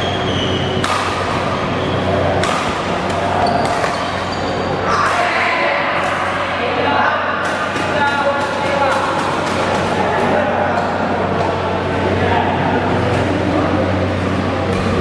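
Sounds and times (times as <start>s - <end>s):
rackets striking shuttlecock: 0.8s - 1.5s, 2.3s - 4.3s
shoes squeaking on court: 3.2s - 4.9s.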